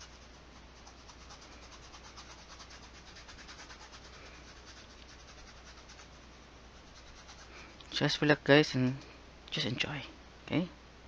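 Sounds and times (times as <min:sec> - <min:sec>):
paintbrush scrubbing on canvas: 0:00.0 - 0:07.8.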